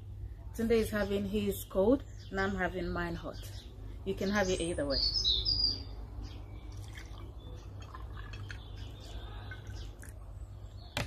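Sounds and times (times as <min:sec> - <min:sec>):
trickling and dripping: 0:06.6 - 0:10.4
drink pouring into a glass: 0:06.7 - 0:10.2.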